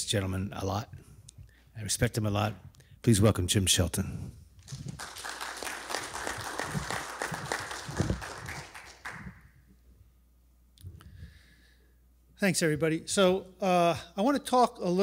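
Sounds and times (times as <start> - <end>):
audience applauding: 4.6 - 9.4.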